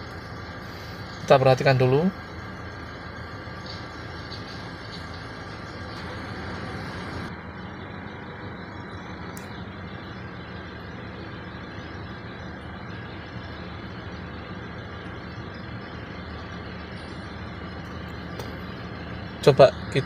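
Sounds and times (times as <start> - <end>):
car engine idling: 0.0 - 20.0.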